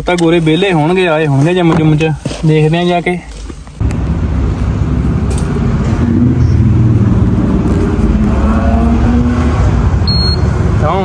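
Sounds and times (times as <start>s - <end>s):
road noise: 0.0s - 11.0s
car engine rumble: 3.5s - 11.0s.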